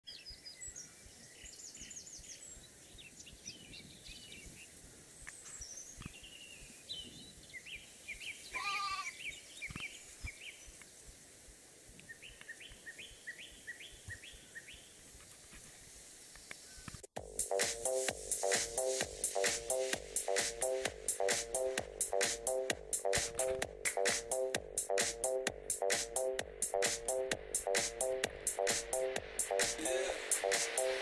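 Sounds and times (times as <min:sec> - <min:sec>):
birds chirping: 0:16.6 - 0:31.0.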